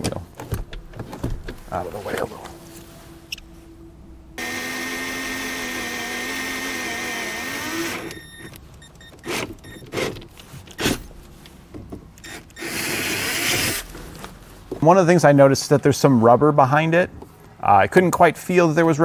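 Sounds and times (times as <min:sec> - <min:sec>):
cordless drill whining: 0:04.4 - 0:08.5, 0:12.3 - 0:13.8.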